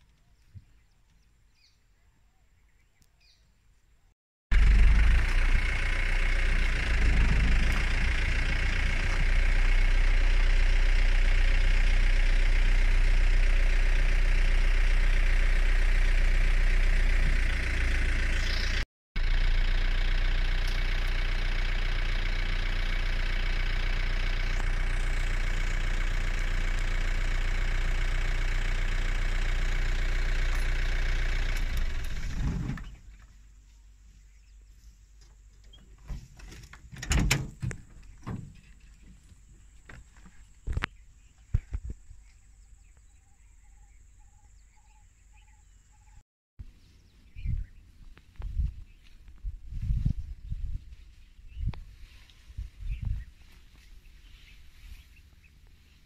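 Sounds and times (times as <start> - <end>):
vehicle engine idling: 4.5 - 56.0.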